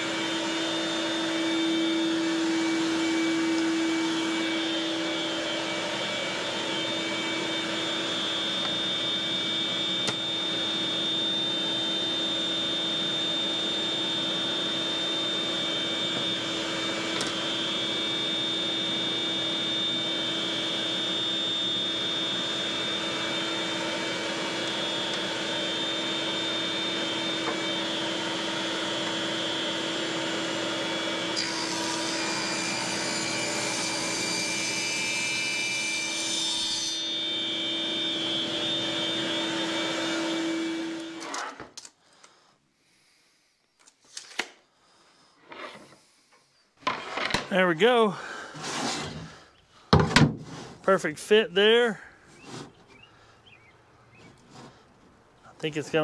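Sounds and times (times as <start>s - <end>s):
machine motor droning with whine: 0.0s - 41.2s.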